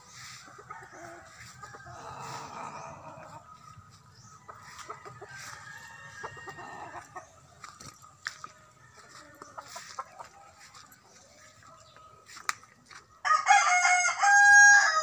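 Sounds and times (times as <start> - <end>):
chickens clucking: 0.0 - 13.9
rooster crowing: 0.7 - 3.4, 13.2 - 15.0.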